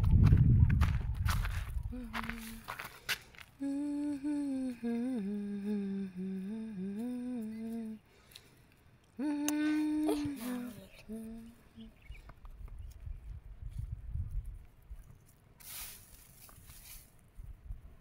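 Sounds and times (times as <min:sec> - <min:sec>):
woman humming: 0:01.8 - 0:02.8, 0:03.6 - 0:08.1, 0:09.1 - 0:12.0.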